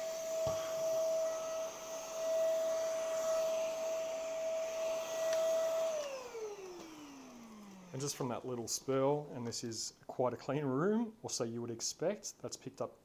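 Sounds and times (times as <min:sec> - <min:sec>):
vacuum motor whine: 0:00.0 - 0:08.4.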